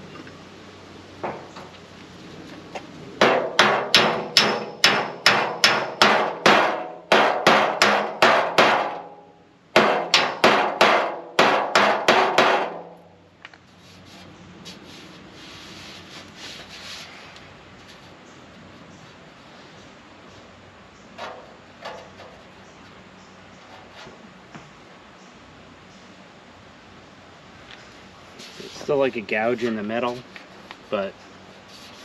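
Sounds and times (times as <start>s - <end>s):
hammer blows on sheet metal: 3.2s - 9.2s, 9.8s - 13.1s.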